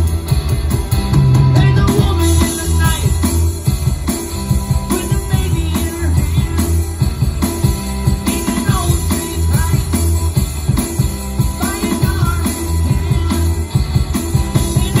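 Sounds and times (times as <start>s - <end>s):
bass guitar: 0.0s - 15.0s
electric guitar: 0.0s - 15.0s
electronic drum kit beat: 0.0s - 15.0s.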